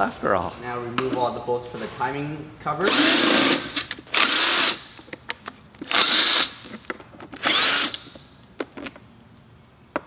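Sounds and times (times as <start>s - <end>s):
power driver whining: 7.4s - 8.2s.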